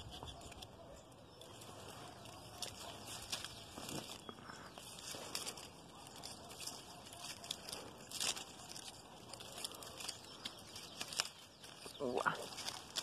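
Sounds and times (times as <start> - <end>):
leaves and twigs rustling: 0.0 - 13.0.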